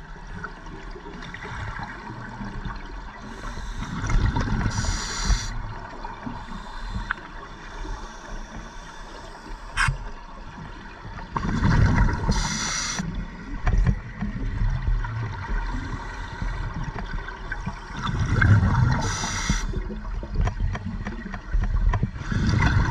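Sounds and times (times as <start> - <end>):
underwater regulator breathing: 3.2 - 5.6, 12.2 - 13.1, 18.8 - 19.8.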